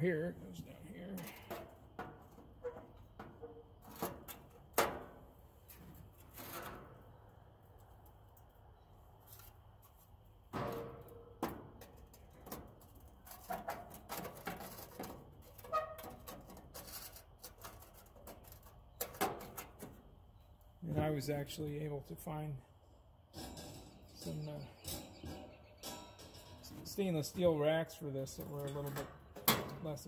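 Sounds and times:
metal clanks and scrapes: 0:01.0 - 0:07.1, 0:10.5 - 0:20.0, 0:23.3 - 0:27.6, 0:28.2 - 0:30.0.

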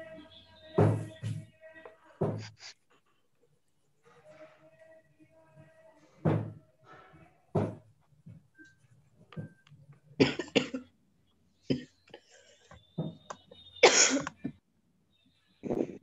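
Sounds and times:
person coughing: 0:10.2 - 0:10.9, 0:11.7 - 0:11.9, 0:13.8 - 0:14.4.

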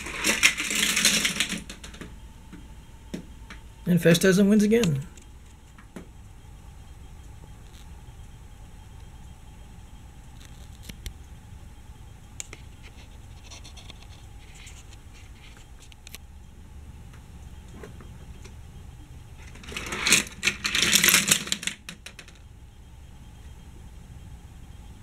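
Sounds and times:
hard plastic clattering: 0:00.0 - 0:02.1, 0:19.4 - 0:22.3.

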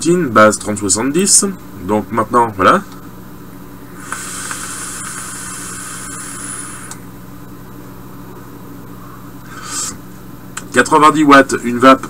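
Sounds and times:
person breathing out: 0:04.0 - 0:06.9, 0:09.5 - 0:10.0
vape airy hiss: 0:04.0 - 0:07.0.

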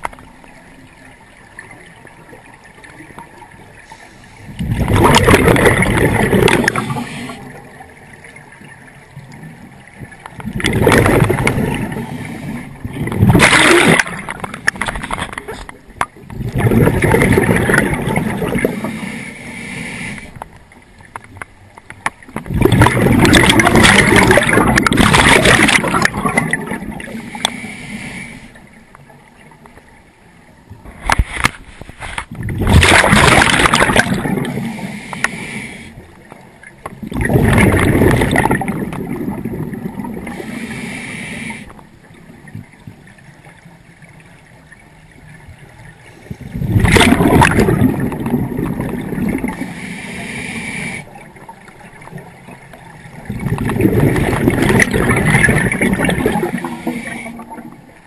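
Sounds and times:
gurgling bubbles: 0:00.0 - 0:19.2, 0:22.2 - 0:27.6, 0:32.3 - 0:35.4, 0:36.4 - 0:41.0, 0:42.0 - 0:49.9, 0:51.0 - 0:58.0
diver breathing through regulator: 0:18.8 - 0:20.4, 0:27.2 - 0:28.6, 0:34.5 - 0:36.1, 0:40.2 - 0:41.8, 0:49.5 - 0:51.1, 0:56.0 - 0:57.6.

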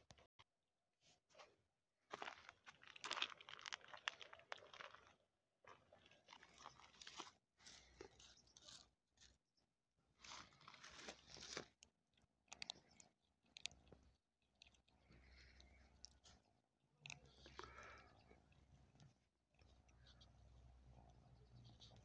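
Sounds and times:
cats crunching dry kibble: 0:02.1 - 0:09.4, 0:10.1 - 0:20.2.

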